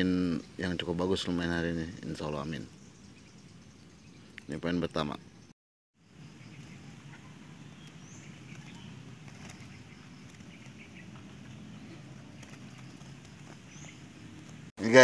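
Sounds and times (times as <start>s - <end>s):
sparrow chirps: 0.2s - 14.7s
birds rustling in cage: 6.5s - 14.7s.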